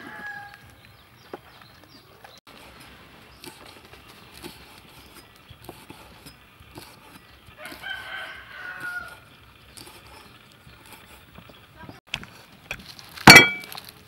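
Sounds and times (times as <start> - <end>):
rooster crowing: 0.0 - 0.8, 7.6 - 9.3.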